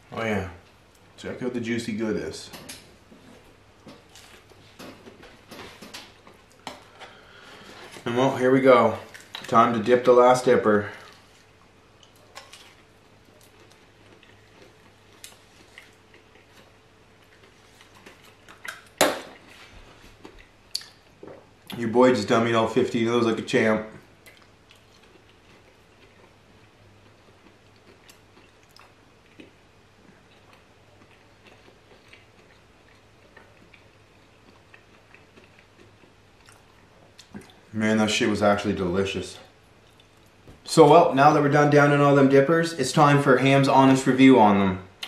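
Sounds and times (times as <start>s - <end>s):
low steady hum: 0.0s - 45.0s
chewing with mouth closed: 11.0s - 21.4s, 24.2s - 37.7s, 39.8s - 40.4s.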